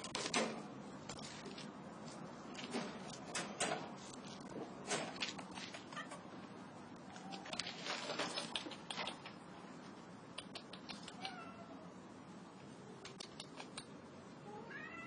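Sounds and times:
cat meowing: 0:11.1 - 0:11.9, 0:14.4 - 0:15.0.

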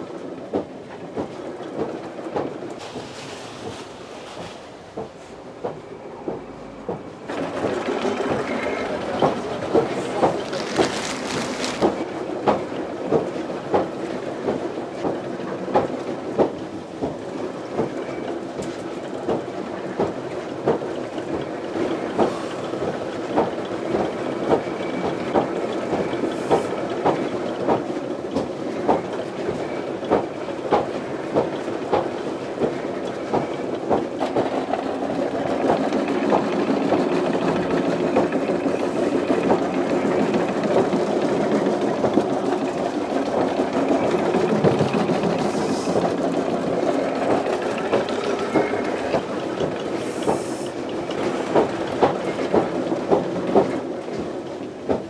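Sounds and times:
carding machine clattering: 0:09.3 - 0:12.0.

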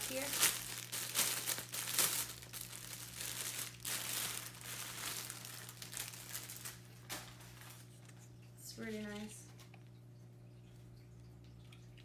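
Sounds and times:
plastic bag crinkling: 0:00.0 - 0:08.1.

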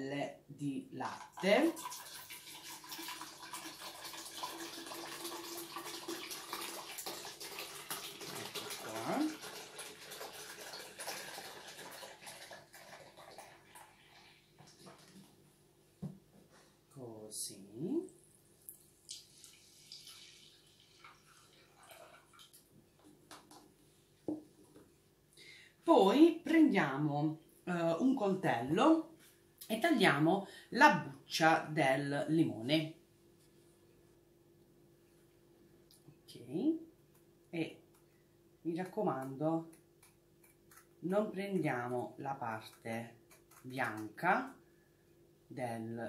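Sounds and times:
milk pouring into a jug: 0:01.1 - 0:15.4, 0:18.7 - 0:22.7.

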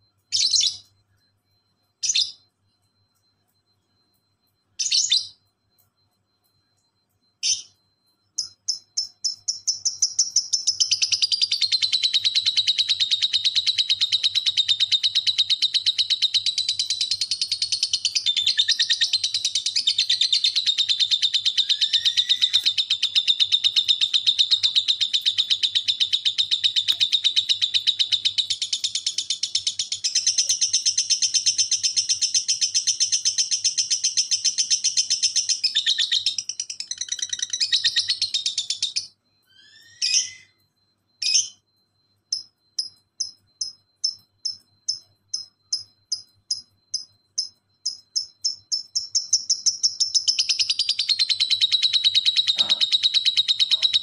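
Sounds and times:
lovebird chattering rapid high notes: 0:08.4 - 0:39.1, 0:42.3 - 0:54.0.

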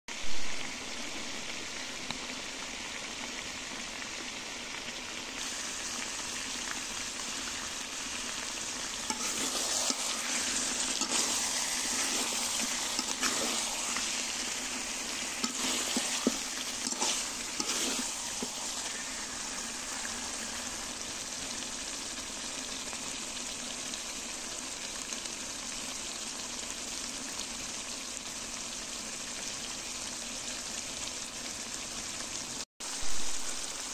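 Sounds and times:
curry sizzling in a pan: 0:00.1 - 0:33.9
spatula scraping and clicking: 0:09.1 - 0:10.2, 0:15.4 - 0:18.6.

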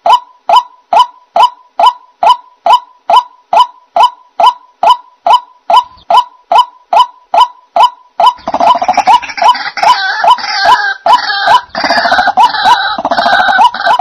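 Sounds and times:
chorus of harsh bird calls: 0:07.8 - 0:14.0.

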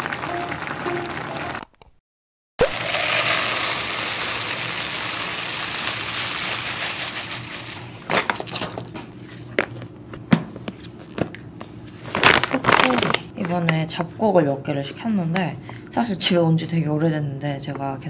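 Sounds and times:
grain pouring into plastic container: 0:02.6 - 0:08.0.

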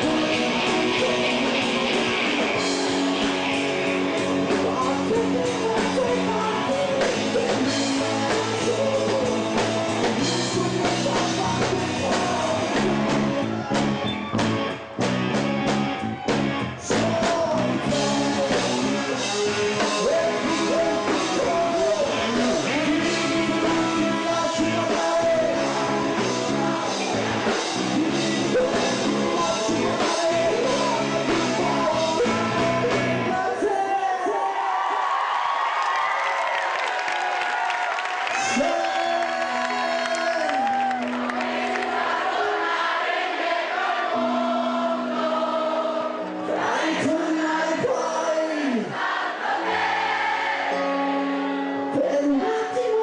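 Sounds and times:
man singing into a microphone: 0:00.0 - 0:03.2, 0:04.4 - 0:13.9, 0:16.8 - 0:34.6, 0:38.3 - 0:41.0, 0:46.2 - 0:49.0, 0:51.7 - 0:53.0
live band playing: 0:00.0 - 0:34.0, 0:37.6 - 0:53.0.

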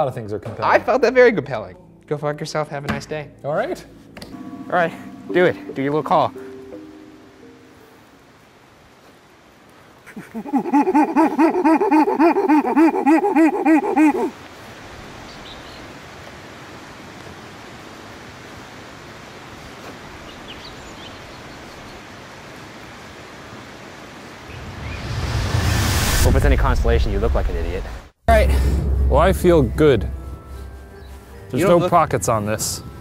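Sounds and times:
faint outdoor hiss: 0:00.0 - 0:33.0
man howling warbling call: 0:10.2 - 0:14.4.

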